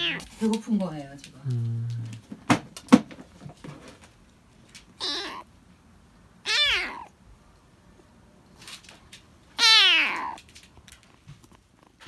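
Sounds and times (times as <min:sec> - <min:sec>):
kitten meowing: 0:00.0 - 0:00.3, 0:05.0 - 0:05.5, 0:06.4 - 0:07.2, 0:09.6 - 0:10.4.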